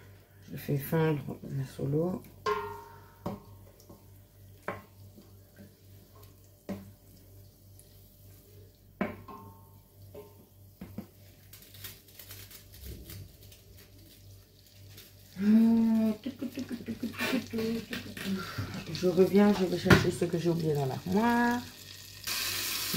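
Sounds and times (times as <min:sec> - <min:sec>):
wooden spatula knocking on pot: 0:02.4 - 0:04.0.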